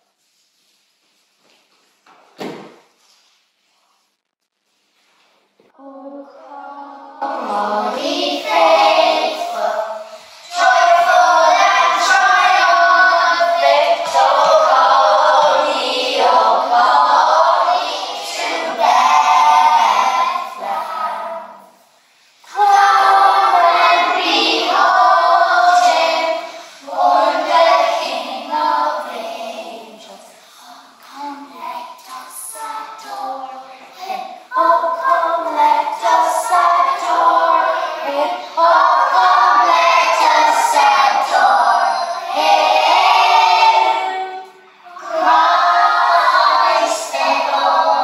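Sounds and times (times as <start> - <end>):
children singing in chorus: 5.8 - 21.7, 22.5 - 48.0.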